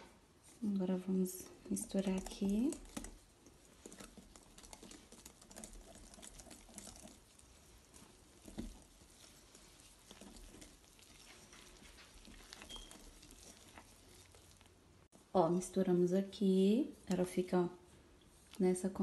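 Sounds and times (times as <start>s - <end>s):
whisk tapping glass bowl: 1.7s - 14.0s.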